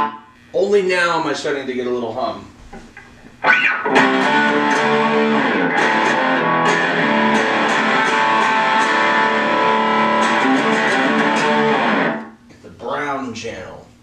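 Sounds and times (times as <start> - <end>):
overdriven electric guitar chords: 0.0 - 0.4, 2.9 - 12.4.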